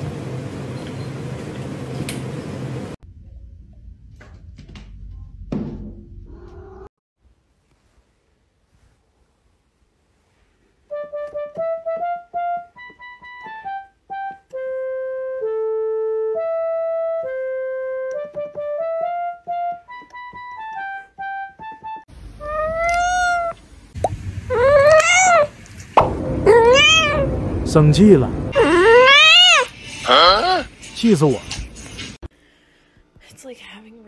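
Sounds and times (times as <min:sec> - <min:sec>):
cat meowing: 0:06.3 - 0:06.9, 0:22.4 - 0:23.6, 0:24.5 - 0:25.5, 0:26.5 - 0:27.3, 0:28.6 - 0:30.7
keyboard melody: 0:10.9 - 0:22.1.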